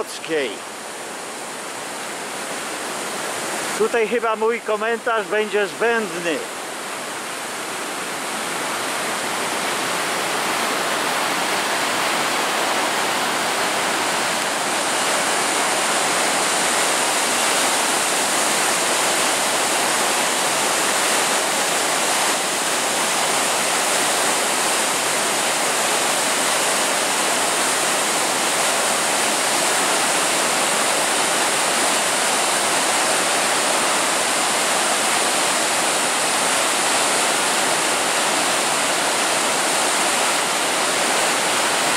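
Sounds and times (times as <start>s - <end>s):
river rushing over weir: 0.0s - 41.9s.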